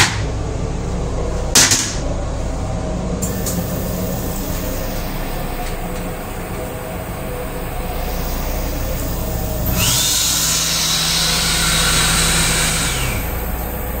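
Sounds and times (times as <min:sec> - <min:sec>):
train rumble: 0:00.0 - 0:11.6
hand dryer blowing: 0:03.2 - 0:14.0.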